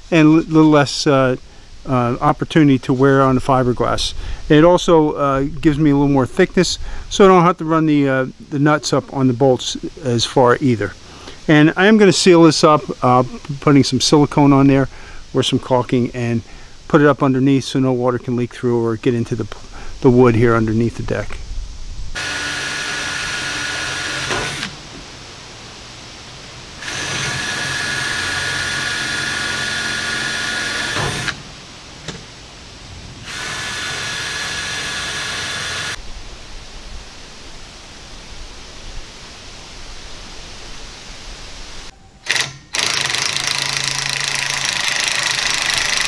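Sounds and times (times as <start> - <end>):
cordless drill running: 22.2 - 24.8, 26.8 - 31.4, 33.2 - 36.0, 42.2 - 46.0.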